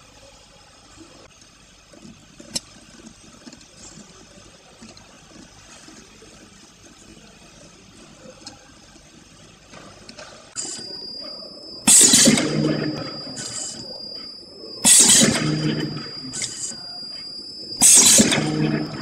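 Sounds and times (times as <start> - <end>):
sharp click: 11.9 - 13.9, 14.8 - 16.8, 17.8 - 19.0.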